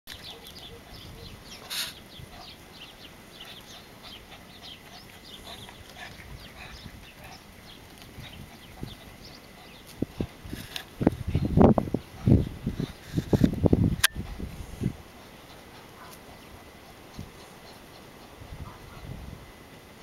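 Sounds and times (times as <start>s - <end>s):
small birds chirping: 0.1s - 13.5s, 15.1s - 19.1s
faint outdoor hiss: 0.1s - 20.0s.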